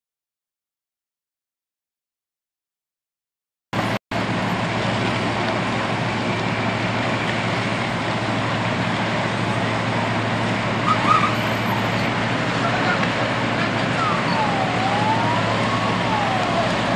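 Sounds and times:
street noise: 3.8 - 16.9
vehicle engines droning: 3.8 - 16.9.

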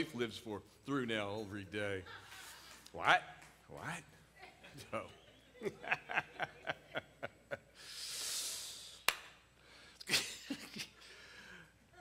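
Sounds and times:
man chuckling: 10.1 - 11.1.

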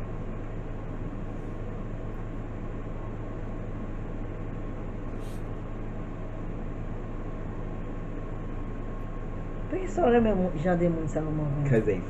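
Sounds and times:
room hum and hiss: 0.0 - 12.0.

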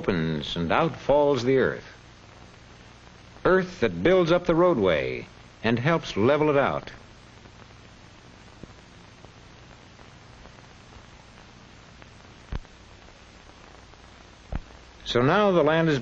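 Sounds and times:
film soundtrack hiss and hum: 0.0 - 16.0
sharp pops: 10.0 - 14.9.

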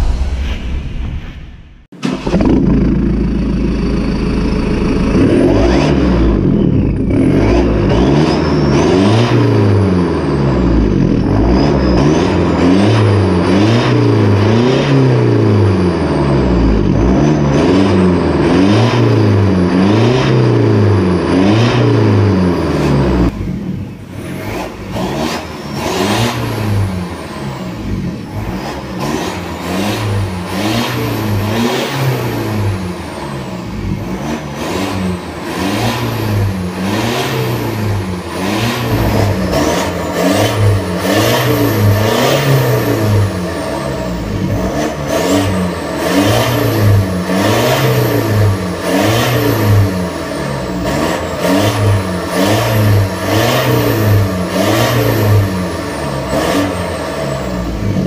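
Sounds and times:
diesel engine revving: 0.0 - 58.0.

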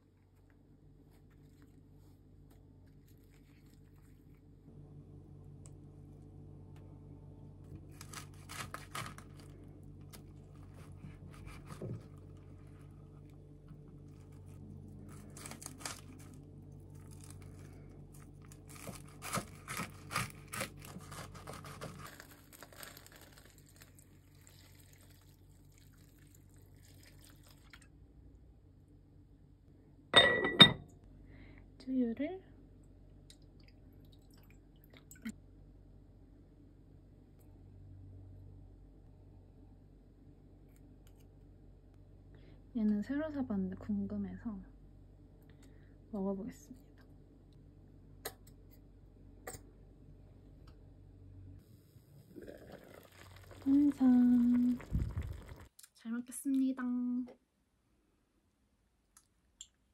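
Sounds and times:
low steady hum: 0.0 - 59.9
knife crunching through cabbage: 7.8 - 13.2, 13.9 - 24.8.

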